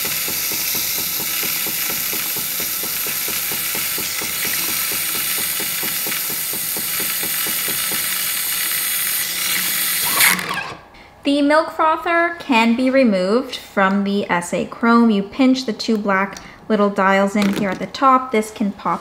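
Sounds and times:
steam hissing: 0.0s - 10.6s
machine pulsing: 0.0s - 10.8s.

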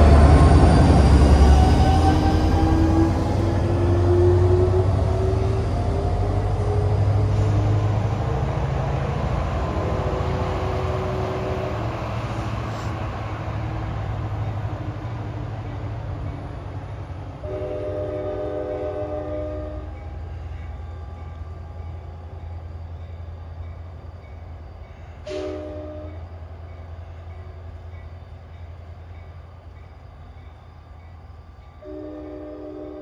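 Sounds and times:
diesel locomotive droning: 0.0s - 33.0s
train horn blasts: 17.4s - 20.0s, 25.2s - 26.2s, 31.8s - 33.0s.

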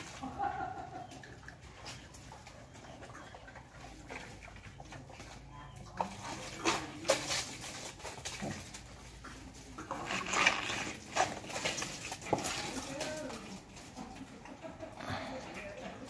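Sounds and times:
wild boars grunting: 14.9s - 15.9s.

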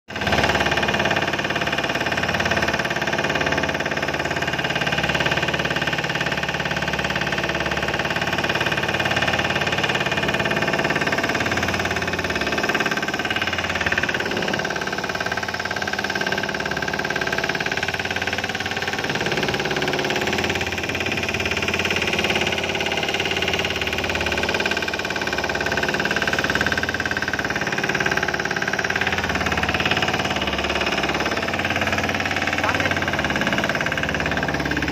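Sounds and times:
boat engine droning: 8.5s - 34.9s.

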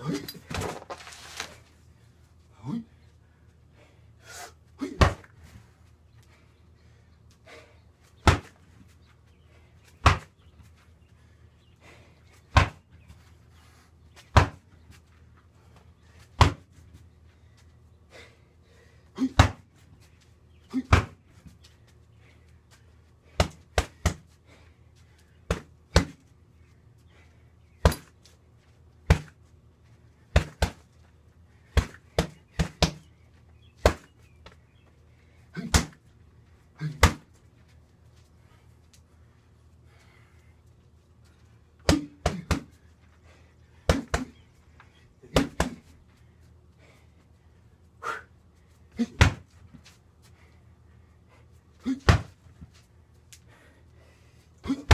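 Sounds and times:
punches hitting heavy bag: 4.9s - 5.3s, 19.3s - 19.6s, 30.4s - 30.8s, 35.6s - 36.0s, 36.8s - 37.3s, 41.9s - 42.7s, 43.9s - 44.4s, 45.3s - 45.9s, 49.1s - 49.5s, 52.0s - 52.4s.

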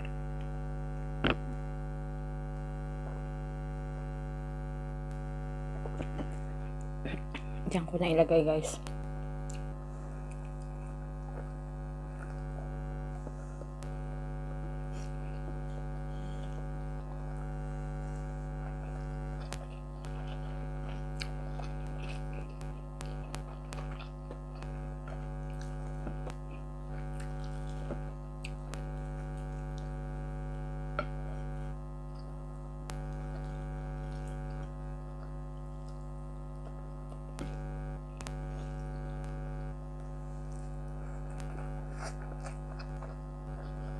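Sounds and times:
air conditioner humming: 0.0s - 43.9s
chewing and eating clicks: 8.8s - 14.0s, 18.6s - 30.2s, 32.1s - 43.9s.

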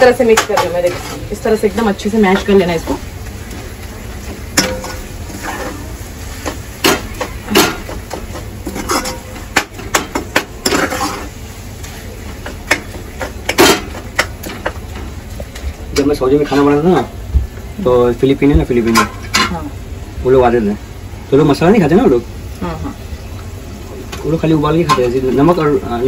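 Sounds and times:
metal ladle scraping metal pan: 4.6s - 5.9s, 8.6s - 9.4s, 10.6s - 11.3s.

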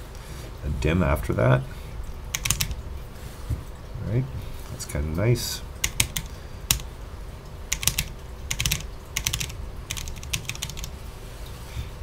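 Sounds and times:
mechanical keyboard key clacks: 2.4s - 2.7s, 7.7s - 10.9s.

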